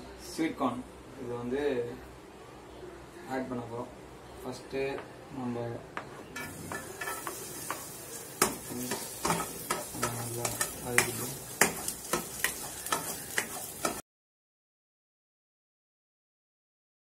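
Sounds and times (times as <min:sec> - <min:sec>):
garlic sizzling in oil: 0:06.4 - 0:14.0.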